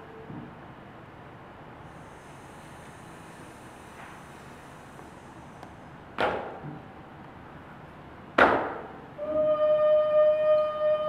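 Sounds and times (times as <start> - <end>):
held musical tone: 9.2 - 11.0.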